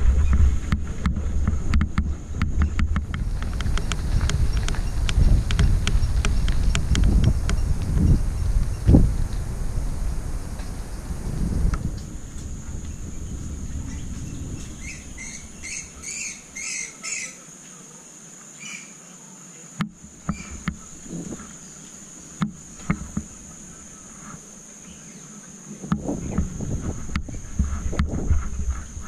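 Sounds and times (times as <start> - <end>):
wind buffeting microphone: 0.0 - 16.7, 20.1 - 21.7, 25.8 - 29.0
steady high whine: 0.0 - 17.4
sharp clicks: 1.7 - 7.9
short high squeaks: 20.3 - 20.6.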